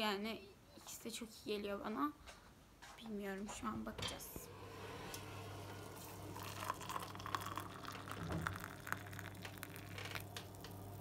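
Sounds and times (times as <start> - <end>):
coffee foaming: 4.6 - 11.0
water pouring into a mug: 5.5 - 11.0.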